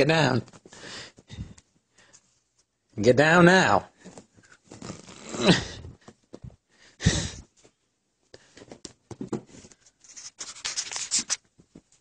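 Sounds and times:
rustling and scratching on bedding: 0:04.0 - 0:05.4.

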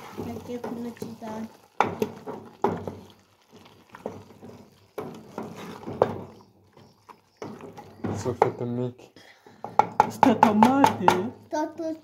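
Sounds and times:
sauce sizzling: 0:00.0 - 0:08.9
wooden spoon stirring in pot: 0:00.0 - 0:11.9
spoon knocking against pot: 0:04.0 - 0:06.4, 0:07.4 - 0:08.8, 0:09.6 - 0:11.4.

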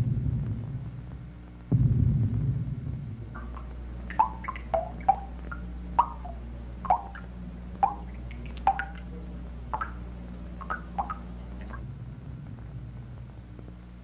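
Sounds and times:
steady low hum: 0:00.0 - 0:14.0
water dripping: 0:03.3 - 0:11.9.

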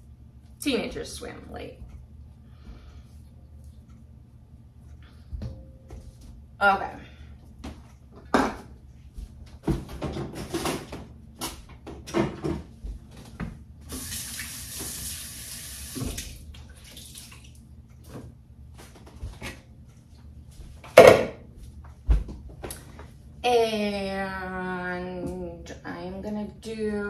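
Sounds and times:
faucet running into sink: 0:13.9 - 0:17.4.

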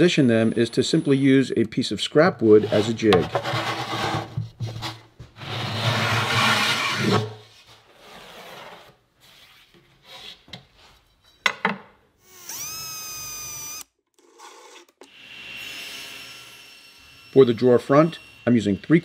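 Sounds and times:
drawer slide scraping: 0:02.5 - 0:07.4, 0:08.0 - 0:09.0
cordless drill whining: 0:12.2 - 0:13.9.

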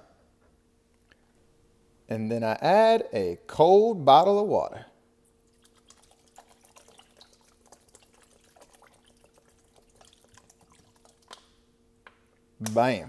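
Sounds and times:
low steady hum: 0:00.0 - 0:13.0
water splashing into pot: 0:05.3 - 0:11.6.

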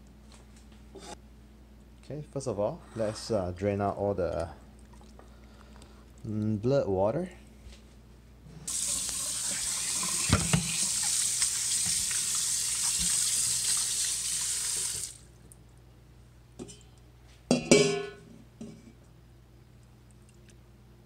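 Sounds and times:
tap running into steel sink: 0:10.0 - 0:10.8.

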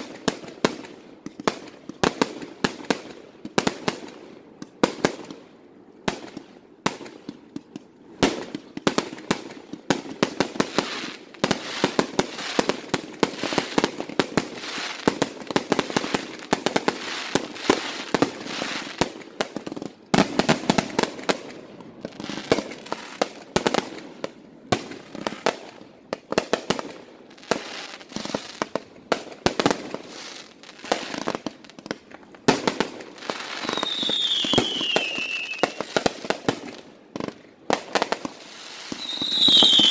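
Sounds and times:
fireworks bangs and crackling: 0:00.0 - 0:39.9
falling firework whistle: 0:33.4 - 0:36.0, 0:38.6 - 0:39.9.

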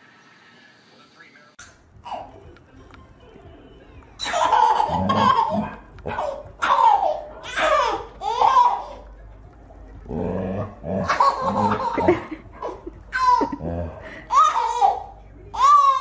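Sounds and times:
baby laughing and squealing: 0:04.2 - 0:09.0, 0:14.3 - 0:16.0.

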